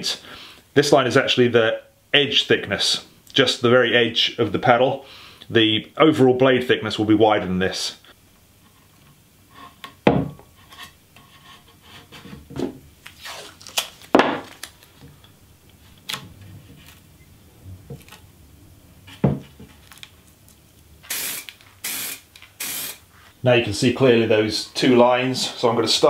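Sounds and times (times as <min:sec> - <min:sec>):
knocks on wooden bench: 0:10.0 - 0:10.4, 0:19.2 - 0:19.5
masking tape tearing: 0:13.0 - 0:14.9, 0:21.0 - 0:23.0
plastic strip rustling: 0:13.0 - 0:17.1, 0:17.9 - 0:18.3, 0:19.2 - 0:22.6.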